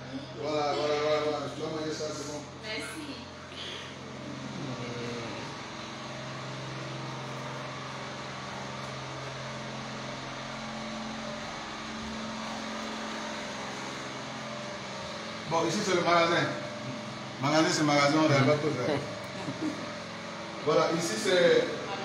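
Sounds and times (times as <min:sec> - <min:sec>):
motor humming: 0:00.0 - 0:22.0.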